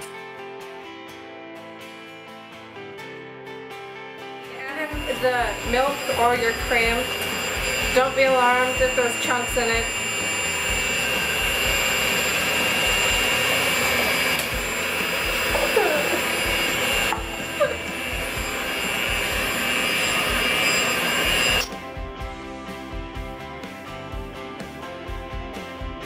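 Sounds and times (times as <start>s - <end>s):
background music: 0.0s - 26.0s
electric hand mixer whining: 4.6s - 21.8s.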